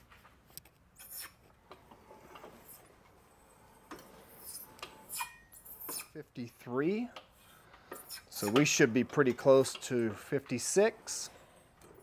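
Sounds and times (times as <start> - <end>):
tube roller rubbing and clicking: 1.0 - 6.2.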